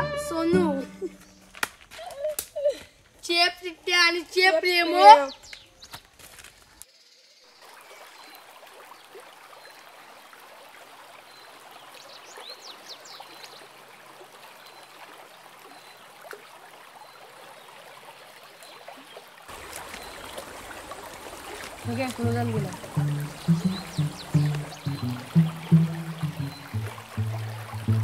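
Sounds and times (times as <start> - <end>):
stream running over rocks: 7.4 - 28.0.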